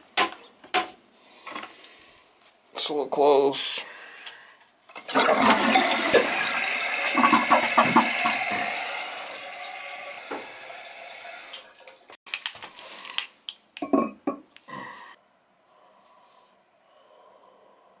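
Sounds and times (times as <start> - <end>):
toilet flushing water gurgling: 5.0 - 12.1
toilet tank refilling: 5.0 - 12.2.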